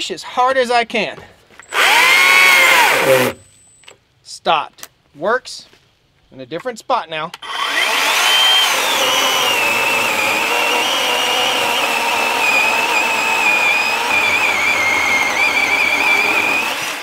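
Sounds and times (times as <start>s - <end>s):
electric chainsaw cutting log: 1.7s - 3.4s, 7.4s - 17.0s.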